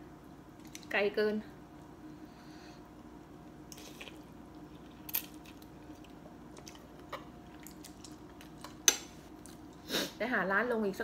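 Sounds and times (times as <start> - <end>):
faint steady hum: 0.0 - 11.0
quiet chewing: 3.7 - 9.9.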